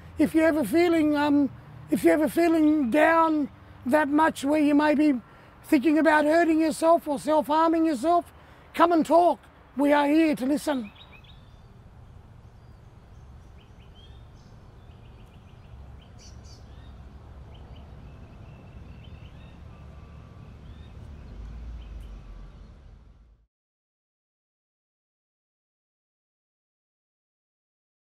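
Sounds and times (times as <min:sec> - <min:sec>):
small birds chirping: 0:08.0 - 0:23.0.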